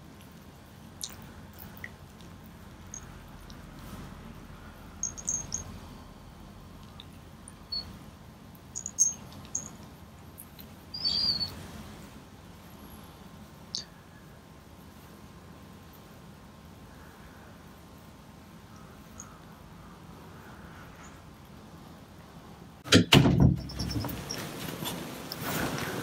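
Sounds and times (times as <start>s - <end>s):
small bell jingling: 5.0s - 5.7s, 8.8s - 9.7s
soft rustle of a quilt: 24.2s - 26.0s.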